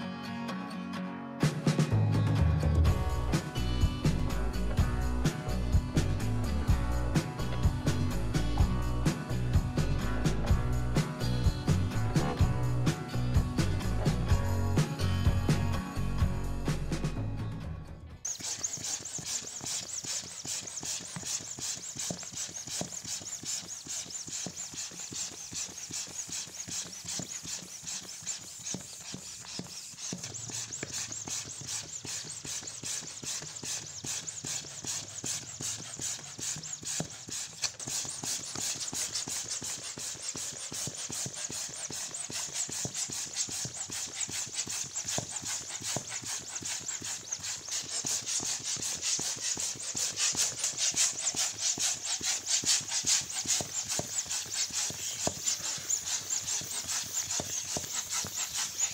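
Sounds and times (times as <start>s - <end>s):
balloon inflator pulsing hiss: 18.2s - 58.9s.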